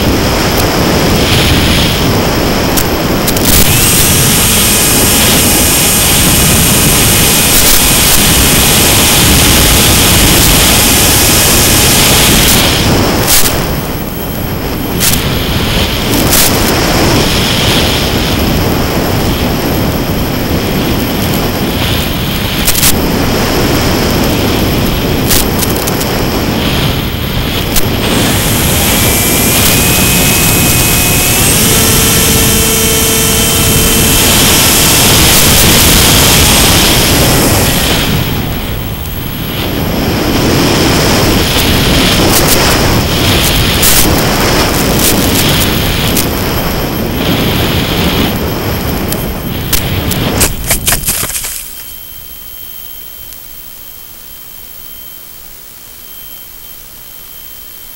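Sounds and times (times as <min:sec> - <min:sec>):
airflow and propeller rushing: 0:00.0 - 0:53.0
electric motor whine: 0:00.0 - 0:57.9.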